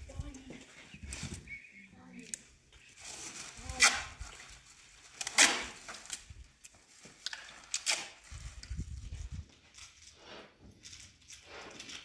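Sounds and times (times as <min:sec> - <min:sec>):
tape ripping off roll: 0:03.0 - 0:04.4, 0:05.1 - 0:06.3, 0:07.2 - 0:08.3.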